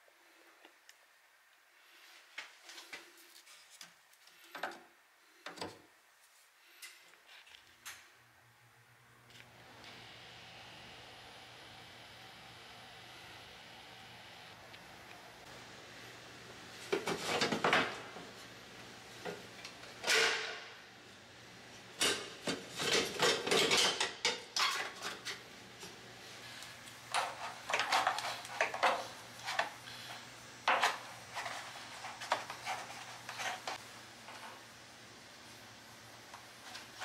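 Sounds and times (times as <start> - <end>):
metal parts and tools clanking: 22.0 - 25.3.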